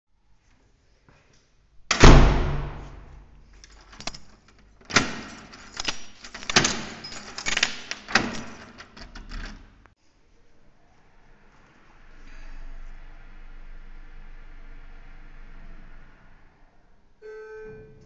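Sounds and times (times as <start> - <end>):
door banging shut: 1.9 - 3.2, 4.8 - 9.7
keys jangling: 3.4 - 9.8
lock clicking and rattling: 3.5 - 9.9.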